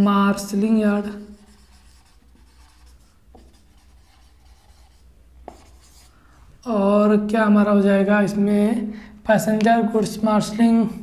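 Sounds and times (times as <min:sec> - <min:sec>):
low steady hum: 0:00.0 - 0:11.0
marker scratching on whiteboard: 0:01.0 - 0:06.1
marker tapping: 0:01.7 - 0:06.0.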